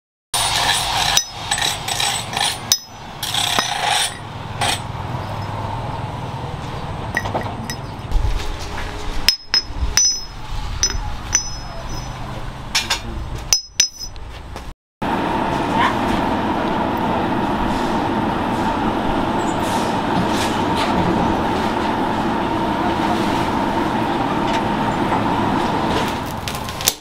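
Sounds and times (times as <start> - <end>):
metal rings clinking: 1.1 - 4.3, 7.1 - 8.0, 9.3 - 12.2, 13.5 - 14.2.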